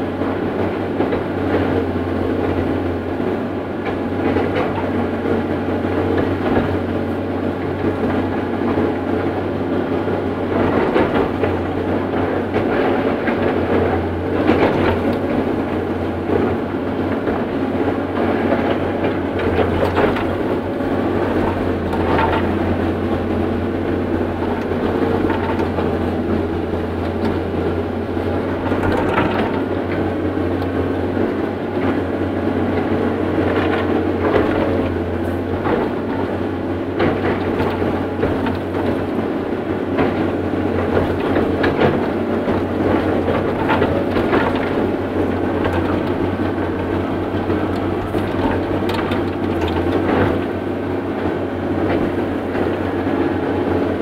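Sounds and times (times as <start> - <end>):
excavator diesel engine and hydraulics: 0.0 - 54.0
machine knocks and clanks: 18.2 - 30.8, 32.8 - 39.2, 39.9 - 50.9.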